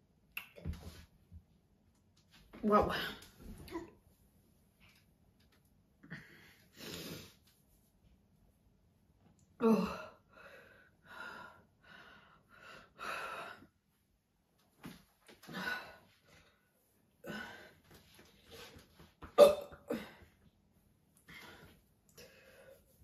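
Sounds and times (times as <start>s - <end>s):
woman burping: 19.4s - 20.1s.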